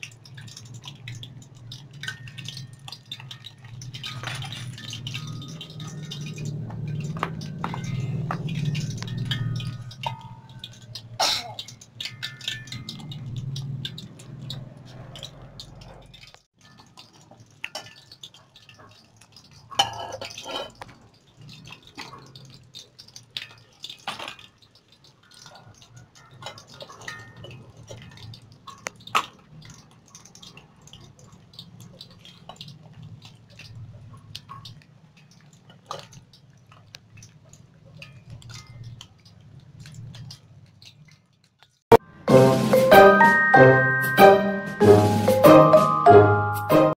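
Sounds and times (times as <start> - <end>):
kitchenware clinking: 0.0 - 32.8.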